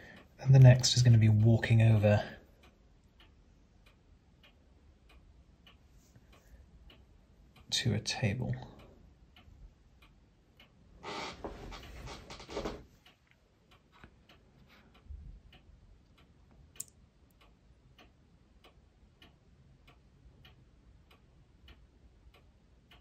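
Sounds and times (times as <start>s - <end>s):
clock ticking: 0.0s - 23.0s.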